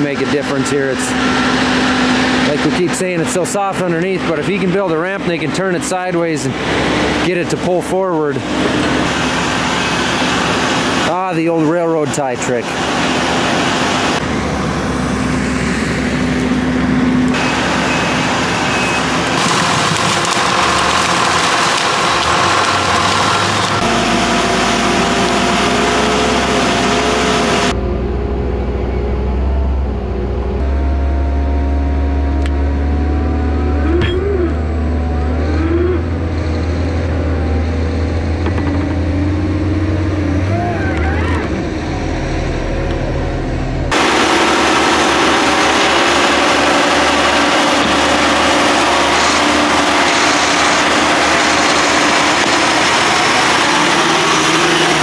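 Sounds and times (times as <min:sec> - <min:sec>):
heavy engines running: 0:00.0 - 0:55.0
rising and falling tones: 0:20.8 - 0:55.0.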